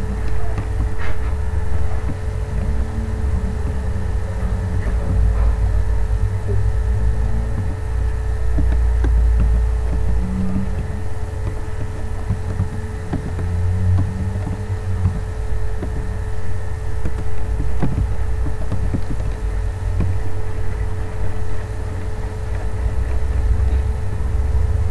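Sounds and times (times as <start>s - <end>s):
constant hum: 0.0s - 24.9s
low rumble: 0.0s - 24.9s.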